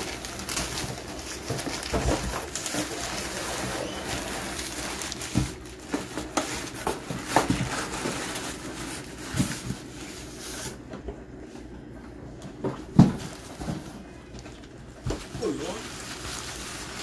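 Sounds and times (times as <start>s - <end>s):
packing paper rustling: 0.0s - 10.9s, 12.8s - 17.0s.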